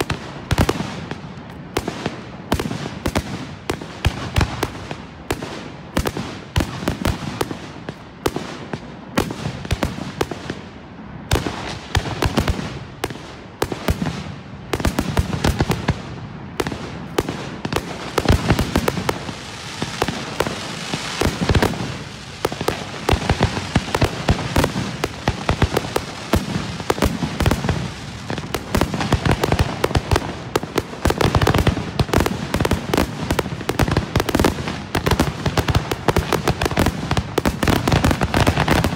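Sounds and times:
fireworks bursting: 0.0 - 38.9.

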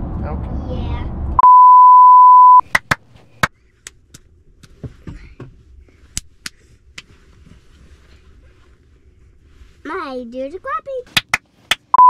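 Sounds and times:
loud steady test beep: 1.4 - 2.6
child clapping hands: 2.7 - 3.0, 11.1 - 11.8.

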